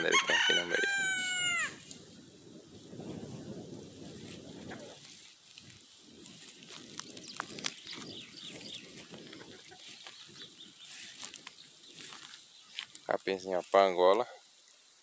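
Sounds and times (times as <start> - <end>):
footsteps through grass: 2.8 - 14.9
chickens clucking: 4.6 - 5.1, 8.4 - 12.3
small birds chirping: 6.1 - 14.9.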